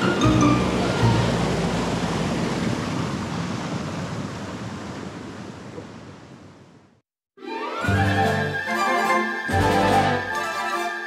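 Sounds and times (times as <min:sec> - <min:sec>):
river water rushing: 0:00.0 - 0:06.6.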